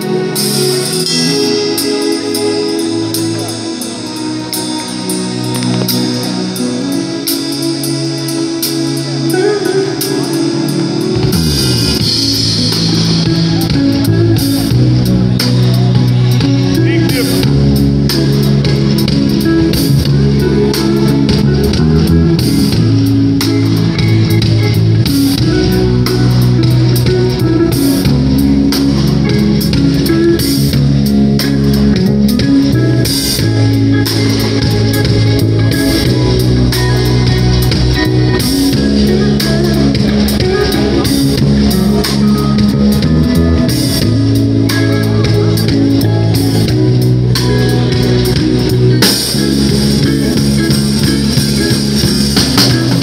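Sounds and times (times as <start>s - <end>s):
bass guitar notes: 0.0s - 53.0s
live band playing instrumental: 0.0s - 53.0s.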